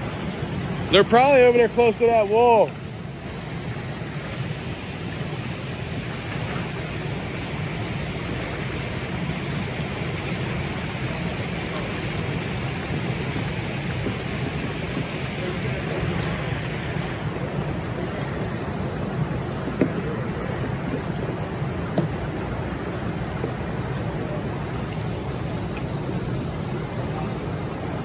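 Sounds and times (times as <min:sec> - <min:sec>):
rushing churning water: 0:00.0 - 0:28.0.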